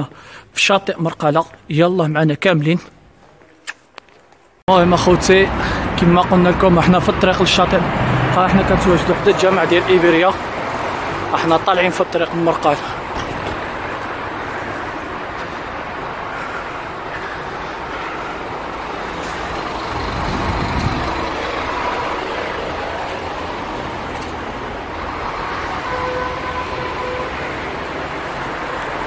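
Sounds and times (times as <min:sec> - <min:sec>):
street traffic: 0:02.6 - 0:29.0
heavy vehicle rumbling past: 0:04.8 - 0:29.0
horn tones: 0:25.2 - 0:29.0.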